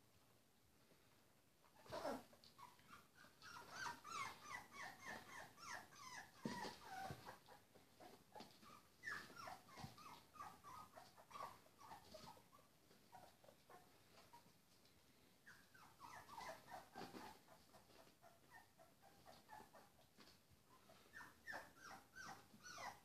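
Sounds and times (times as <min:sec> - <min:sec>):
puppies squeaking and whimpering: 0:01.8 - 0:14.5, 0:15.4 - 0:20.1, 0:20.8 - 0:23.0.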